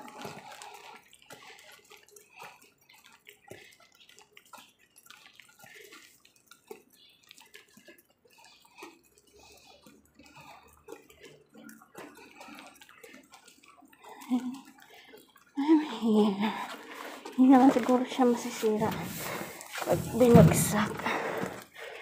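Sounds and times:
footsteps walking: 0:16.4 - 0:22.0
handling rustles: 0:16.8 - 0:21.8.

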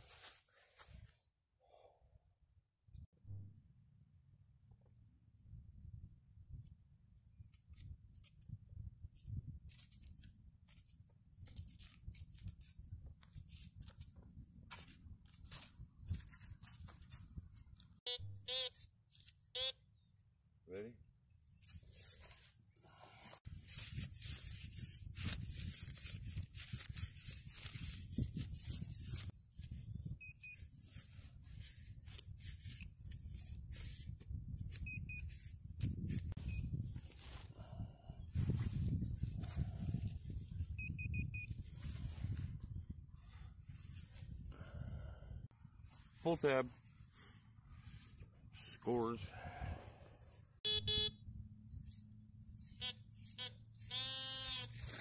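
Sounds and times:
wind rumble on microphone: 0:07.7 - 0:10.2, 0:23.5 - 0:32.4, 0:33.0 - 0:45.9
short electronic beeps: 0:18.1 - 0:18.8, 0:19.6 - 0:19.8, 0:34.8 - 0:35.3, 0:40.8 - 0:41.5, 0:50.6 - 0:51.2, 0:52.7 - 0:54.7
dry rustling and scraping: 0:21.5 - 0:29.8, 0:30.7 - 0:37.6, 0:51.7 - 0:55.0
digging tool scraping soil: 0:21.6 - 0:29.7.

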